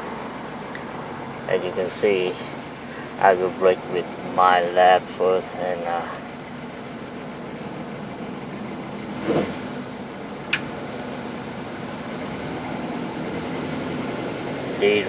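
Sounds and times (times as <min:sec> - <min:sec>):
car engine misfiring: 0:05.6 - 0:15.0
sharp click: 0:10.5 - 0:10.7.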